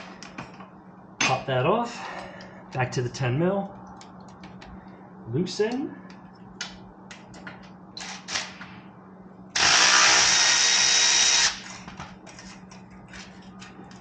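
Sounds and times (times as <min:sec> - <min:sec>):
cordless ratchet running: 0:09.6 - 0:11.8.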